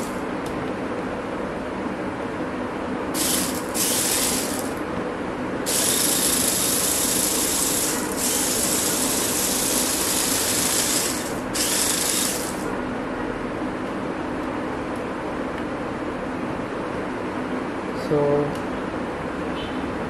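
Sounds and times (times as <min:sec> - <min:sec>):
robot car motors whirring: 0:03.2 - 0:04.8, 0:05.7 - 0:12.6.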